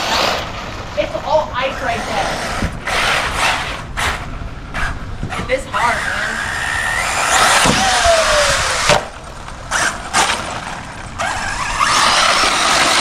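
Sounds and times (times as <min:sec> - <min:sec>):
tyres churning on frozen ground: 0:00.0 - 0:13.0
electric motor whine: 0:04.8 - 0:13.0.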